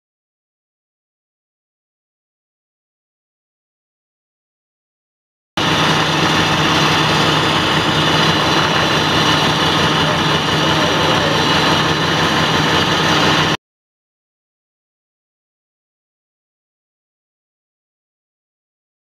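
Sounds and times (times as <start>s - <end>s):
diesel engine idling: 5.6s - 13.6s
faint voices: 7.1s - 13.0s.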